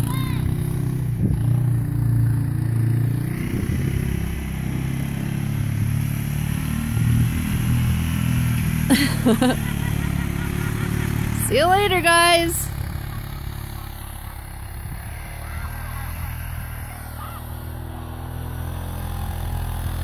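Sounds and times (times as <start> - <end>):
atv engine running: 0.0 - 20.0.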